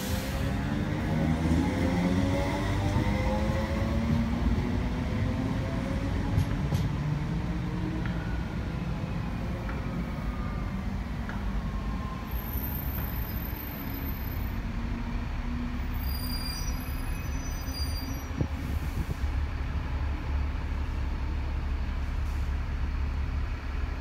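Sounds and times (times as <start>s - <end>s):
electric train rumbling: 0.0s - 24.0s
wheels squealing on rails: 11.8s - 14.6s, 15.8s - 19.1s.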